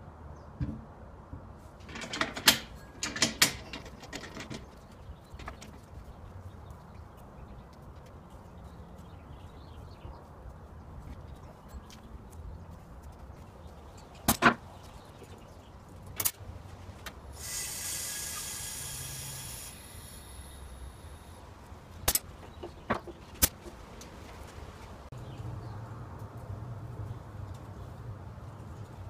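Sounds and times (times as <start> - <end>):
metal clicks and knocks: 1.8 - 5.9
compressed air hiss: 17.3 - 21.4.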